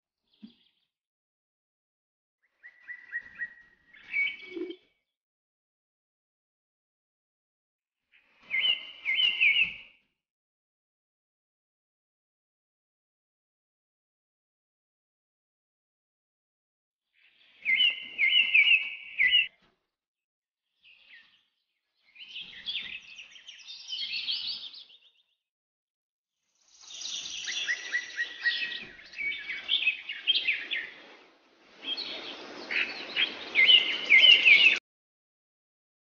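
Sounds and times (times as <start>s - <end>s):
birds chirping: 2.6s - 4.8s, 26.8s - 31.2s, 31.8s - 34.8s.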